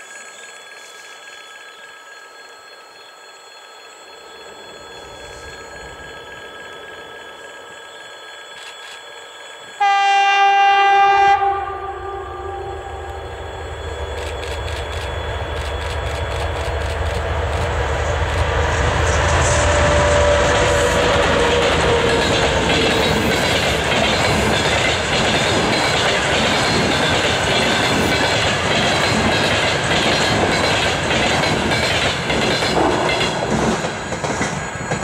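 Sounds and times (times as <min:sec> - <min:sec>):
train wheels rushing past: 0:03.4 - 0:35.0
diesel locomotive engine rumble: 0:09.8 - 0:35.0.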